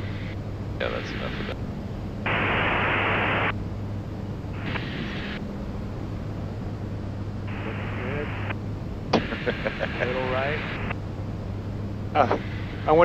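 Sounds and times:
aircraft engines droning: 0.0 - 13.0
radio static burst: 0.8 - 1.6, 2.3 - 3.5, 4.6 - 5.4, 7.5 - 8.6, 9.2 - 10.9, 12.2 - 13.0.

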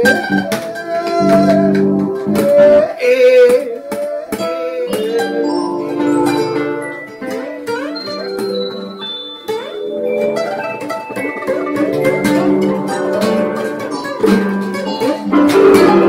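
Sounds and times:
acoustic guitar playing: 0.0 - 16.0
wavering melody line: 4.4 - 16.0.

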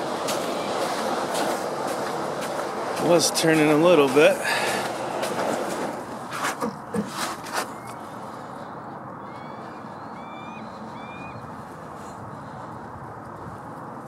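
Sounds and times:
distant bird calling: 0.0 - 3.2, 7.7 - 12.8
steady outdoor hiss: 0.0 - 14.0.

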